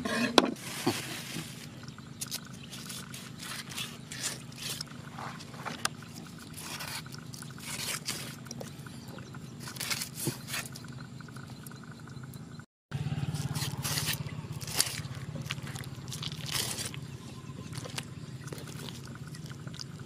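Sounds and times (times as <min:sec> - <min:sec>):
low hum: 0:00.2 - 0:20.0
knife scraping fish: 0:06.5 - 0:08.4.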